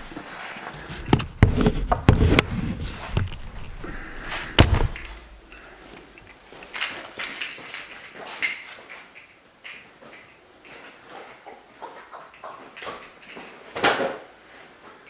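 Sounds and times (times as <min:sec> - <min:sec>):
sharp knocks and thuds: 0:00.9 - 0:03.8, 0:04.4 - 0:05.4.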